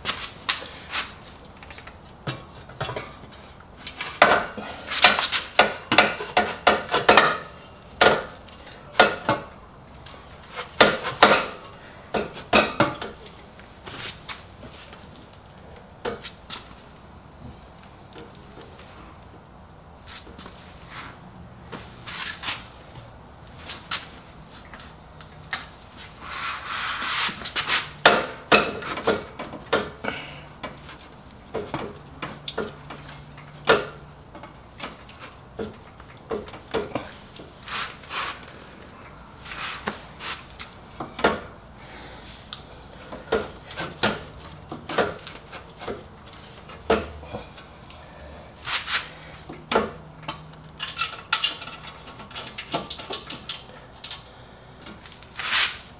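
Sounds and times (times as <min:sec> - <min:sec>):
metal clicks and knocks: 0:49.5 - 0:54.2.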